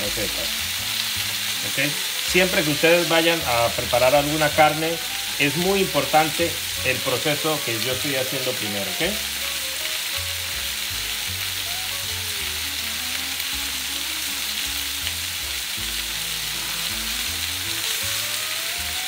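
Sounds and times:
background music with bass: 0.0s - 19.0s
chicken sizzling in hot oil: 0.0s - 19.0s.

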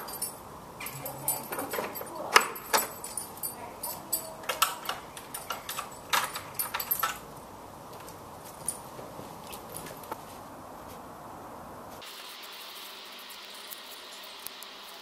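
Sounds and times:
metal lock clicks and rattles: 0.0s - 7.3s
keys jangling: 0.0s - 10.0s.

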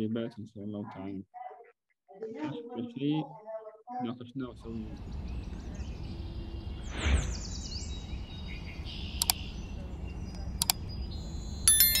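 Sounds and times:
whoosh with chirping sweeps: 6.8s - 7.9s
mouse clicks: 9.2s - 9.4s, 10.3s - 10.8s
notification bell chime: 11.7s - 12.0s.

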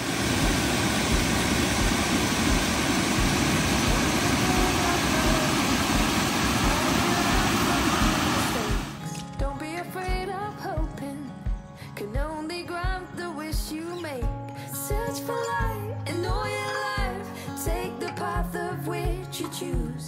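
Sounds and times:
water rushing over rapids: 0.0s - 9.0s
faint music beat: 0.4s - 20.0s
music with singing: 2.6s - 20.0s.

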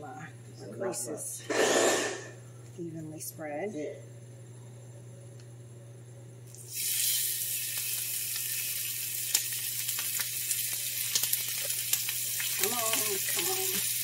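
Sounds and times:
chicken sizzling in hot oil: 6.5s - 14.0s.

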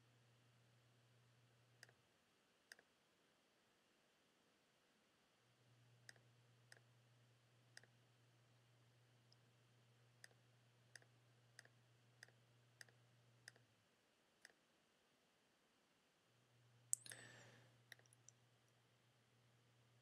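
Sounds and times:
faint low hum: 0.0s - 20.0s
computer mouse clicks: 11.0s - 13.7s.

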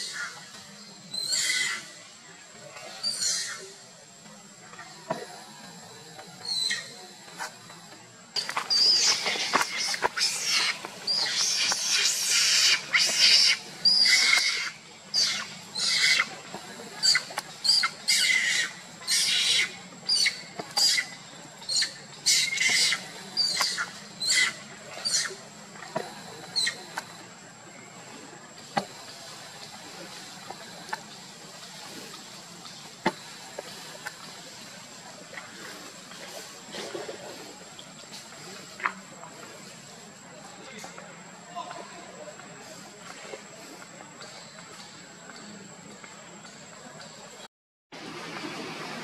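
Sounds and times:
monkey screaming: 8.7s - 16.3s, 17.0s - 21.1s, 22.3s - 25.3s.

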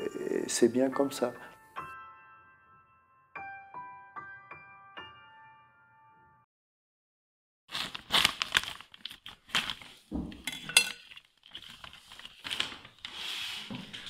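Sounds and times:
plastic sheeting crinkling: 7.7s - 10.2s, 11.2s - 14.0s.

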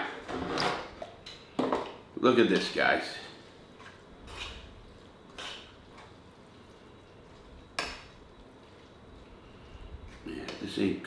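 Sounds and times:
fork scraping against bowl: 4.2s - 4.7s, 5.3s - 5.8s.

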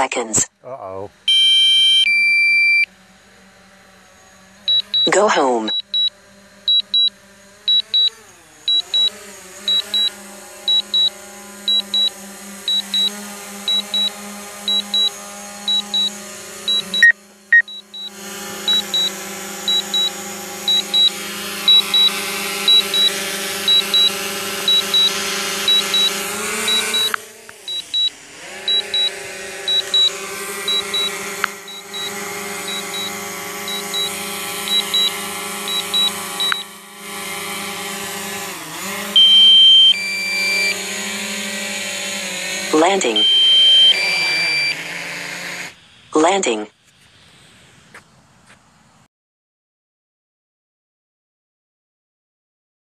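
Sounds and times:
drone propellers humming: 0.1s - 46.6s
remote controller beeps: 1.3s - 2.9s, 4.7s - 6.1s, 6.7s - 36.8s, 39.2s - 40.8s, 42.8s - 44.8s.

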